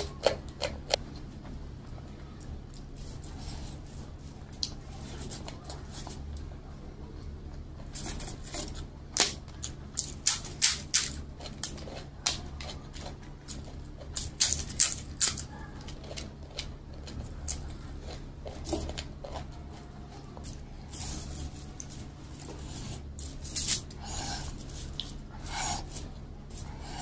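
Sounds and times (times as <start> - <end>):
chewing: 0.0 - 2.0, 7.5 - 27.0
crisp wafer crackling: 7.9 - 27.0.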